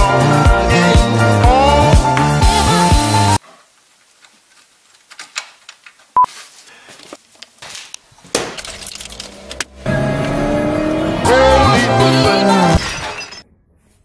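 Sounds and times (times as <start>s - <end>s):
music: 0.0s - 3.4s, 11.0s - 12.8s.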